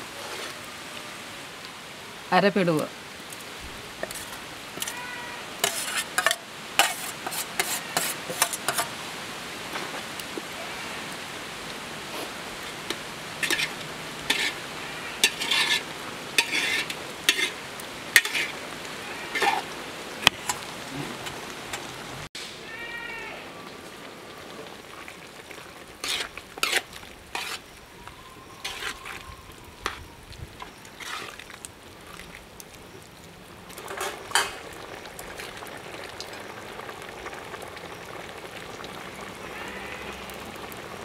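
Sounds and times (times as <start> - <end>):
pot bubbling: 3.2 - 9.0, 12.0 - 21.9, 23.8 - 41.0
spoon scraping metal plate: 5.6 - 8.9, 13.4 - 14.6, 15.2 - 15.8, 16.4 - 17.6, 18.2 - 18.5, 19.3 - 19.7, 26.0 - 27.6, 28.6 - 29.0.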